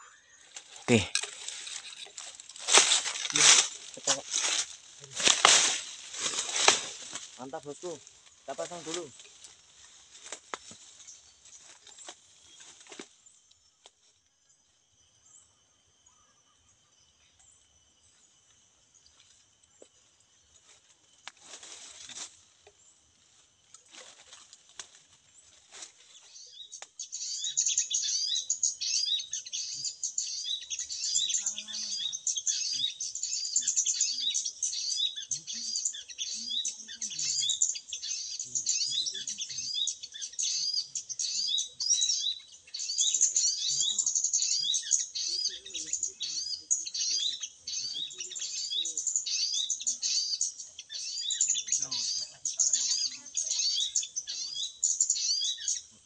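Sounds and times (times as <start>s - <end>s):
rapid high bird chirping: 26.2s - 56.0s.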